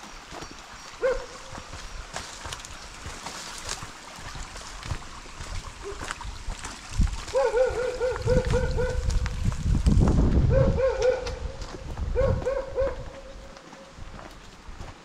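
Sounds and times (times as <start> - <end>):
dog yapping: 1.0 - 1.4, 7.3 - 9.1, 10.5 - 11.4, 12.2 - 13.2.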